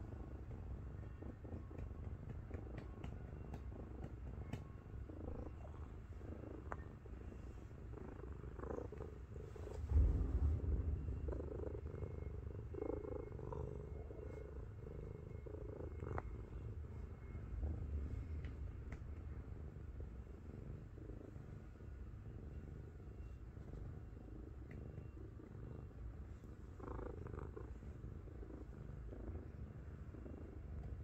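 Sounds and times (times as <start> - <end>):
cat purring: 0.0 - 31.0.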